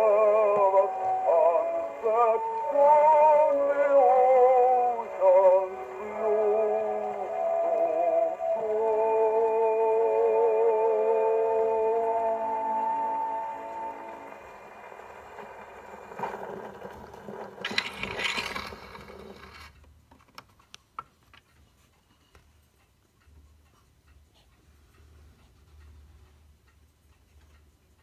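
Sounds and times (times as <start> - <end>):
scratchy record surface noise: 13.5 - 19.8.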